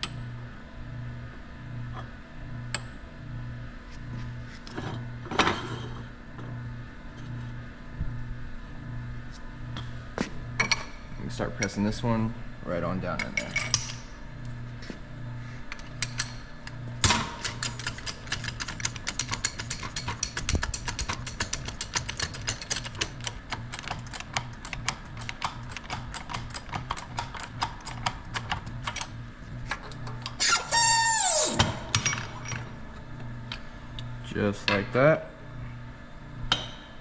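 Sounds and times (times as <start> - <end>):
loud squeal falling in pitch: 30.4 - 31.6.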